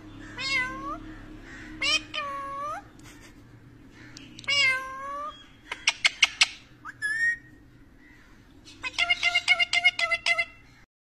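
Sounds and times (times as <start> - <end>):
parakeet calling: 0.0 - 3.0, 3.8 - 10.9
sharp bird chirps: 5.3 - 7.6.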